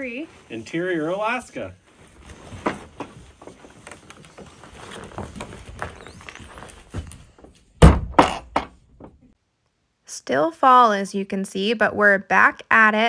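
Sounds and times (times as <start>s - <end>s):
footsteps and door knocks: 5.0s - 9.3s
loud thud: 7.8s - 8.8s.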